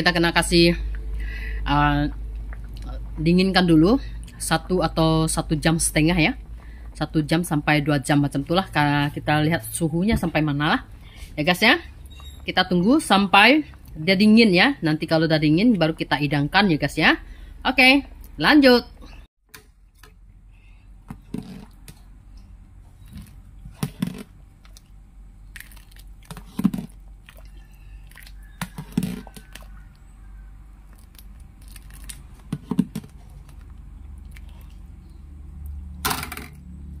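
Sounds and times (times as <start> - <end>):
ladle knocking and scraping pot: 28.4 - 29.7.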